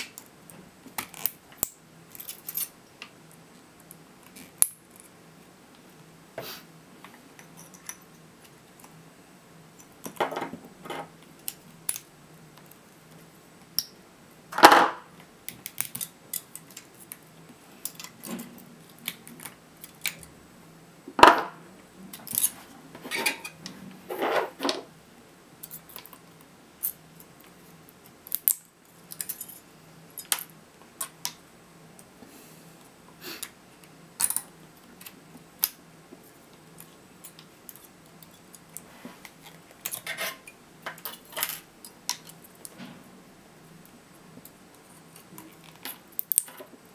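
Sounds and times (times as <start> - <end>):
metallic clicks and snaps: 45.2 - 46.6.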